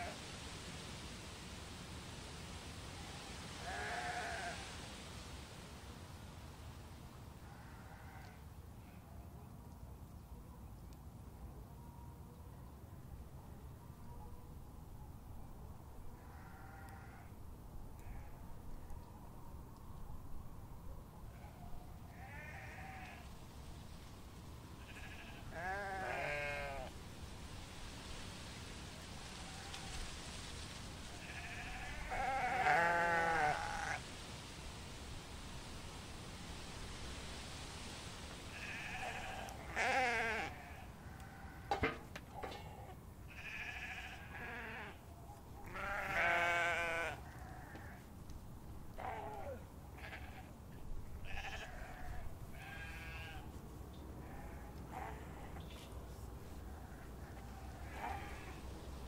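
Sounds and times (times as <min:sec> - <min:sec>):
low steady background noise: 0:00.0 - 0:59.0
sheep bleating: 0:03.6 - 0:04.6, 0:16.3 - 0:17.3, 0:22.1 - 0:23.2, 0:24.8 - 0:26.9, 0:31.2 - 0:34.0, 0:38.6 - 0:41.7, 0:42.6 - 0:45.0, 0:45.7 - 0:48.0, 0:49.0 - 0:50.5, 0:51.2 - 0:53.5, 0:54.2 - 0:55.6, 0:57.8 - 0:58.6.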